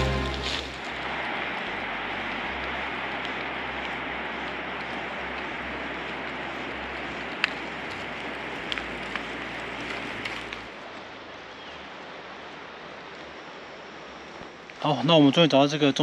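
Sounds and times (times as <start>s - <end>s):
footsteps on loose scree: 0.0s - 10.7s.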